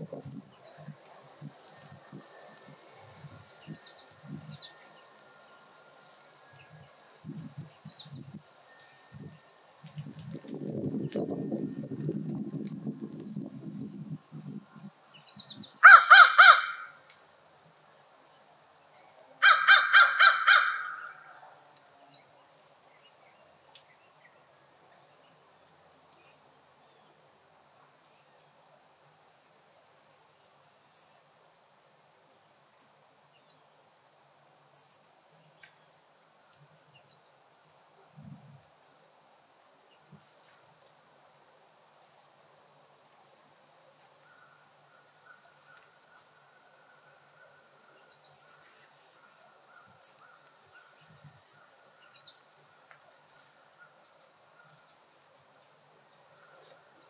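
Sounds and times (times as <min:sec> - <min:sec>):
crows cawing: 0:15.8 - 0:17.0, 0:19.4 - 0:21.4
small birds chirping: 0:44.3 - 0:57.0.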